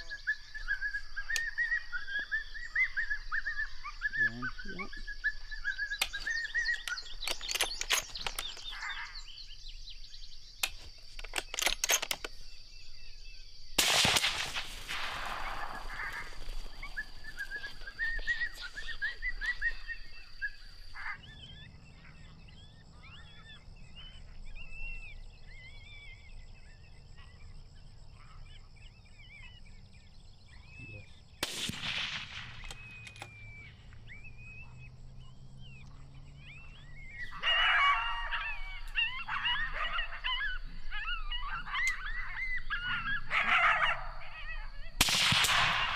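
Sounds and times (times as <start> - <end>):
birds chirping: 0.0 - 45.9
sharp clicks: 5.9 - 9.1, 10.6 - 12.5, 31.4 - 34.0
rifle shots: 13.8 - 19.0, 31.4 - 33.5, 45.0 - 45.9.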